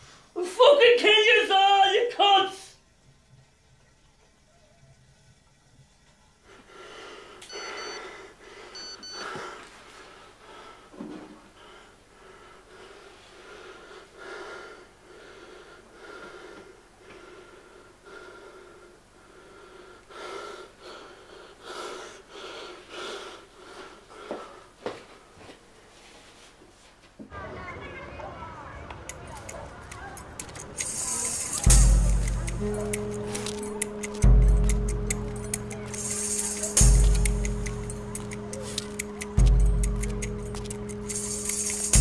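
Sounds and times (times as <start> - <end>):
heavy ragged breathing: 6.5 - 24.8
high beeps: 7.5 - 8.0, 8.8 - 9.2.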